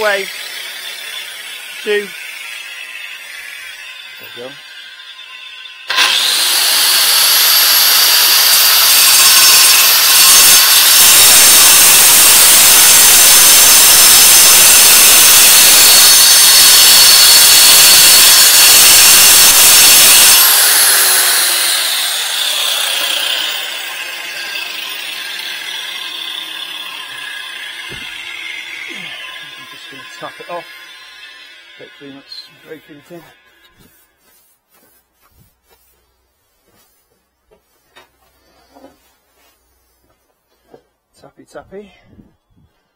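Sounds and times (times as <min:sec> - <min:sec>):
angle grinder cutting stone: 0:00.0 - 0:34.2.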